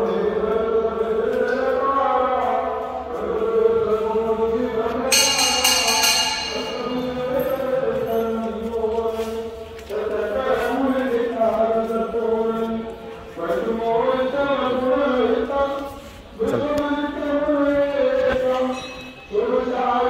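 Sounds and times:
devotional chanting: 0.0s - 20.0s
temple bell clang: 5.1s - 8.3s.

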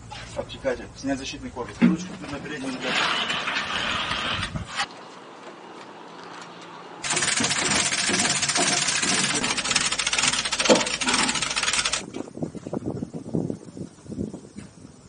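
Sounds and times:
loud engine-like mechanical noise: 6.8s - 12.0s.

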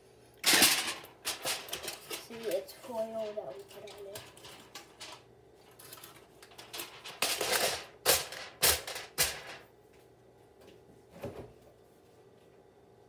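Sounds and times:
aluminium foil crinkling: 1.2s - 7.6s.

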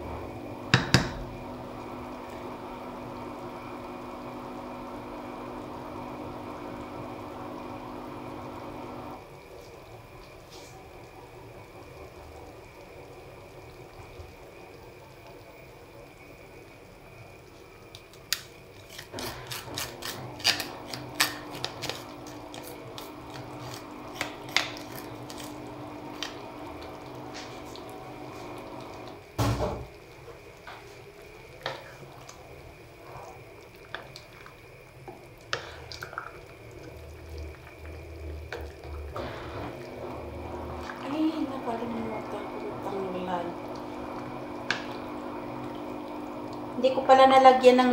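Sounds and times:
soup bubbling in a pot: 0.0s - 18.9s, 20.8s - 47.9s
wooden spoon tapping a colander: 0.7s - 1.2s.

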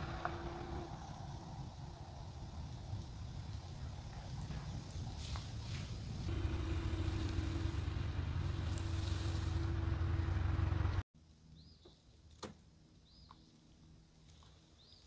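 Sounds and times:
car engine rumbling: 0.0s - 4.8s, 6.0s - 11.0s.

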